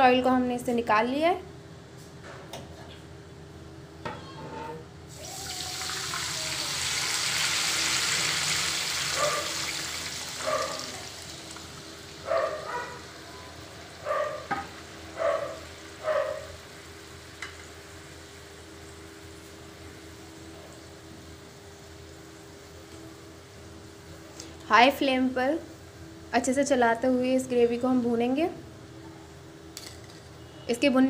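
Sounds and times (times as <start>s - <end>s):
gravy sizzling in hot oil: 5.1s - 22.6s.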